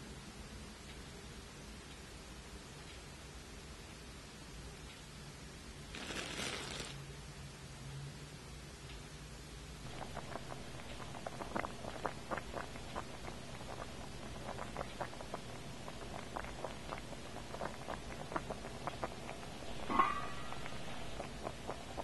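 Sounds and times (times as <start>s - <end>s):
water bubbling in a pot: 9.8s - 22.0s.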